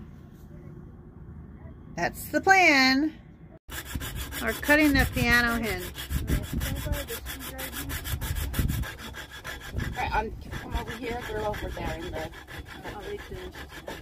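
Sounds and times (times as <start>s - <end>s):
hacksaw cutting metal: 3.7s - 14.0s.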